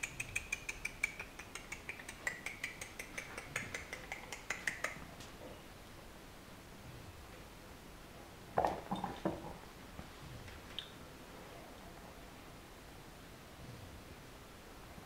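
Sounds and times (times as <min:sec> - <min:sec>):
cat tongue licking clicks: 0:00.0 - 0:05.0.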